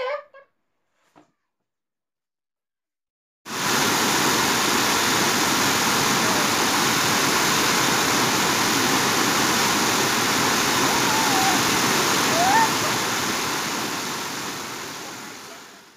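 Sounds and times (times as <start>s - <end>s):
waterfall pouring onto rocks: 3.5s - 15.9s.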